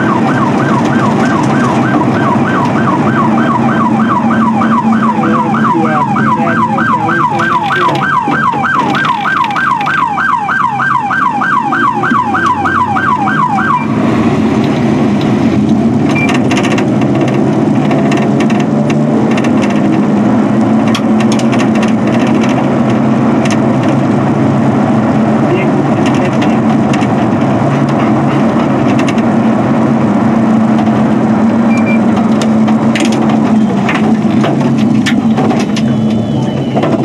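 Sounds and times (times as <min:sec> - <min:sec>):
police siren yelping: 0:00.0 - 0:14.2
vehicle engine and road noise: 0:00.0 - 0:37.0.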